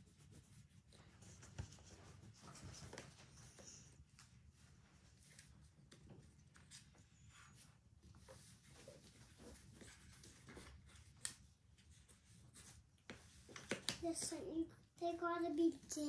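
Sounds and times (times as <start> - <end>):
oil pastels scratching on paper: 0.0 - 4.0, 6.5 - 11.2.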